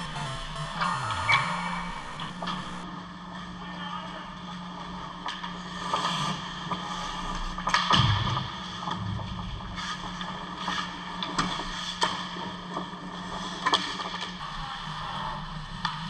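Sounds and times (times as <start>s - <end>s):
steady low hum: 0.0s - 3.0s.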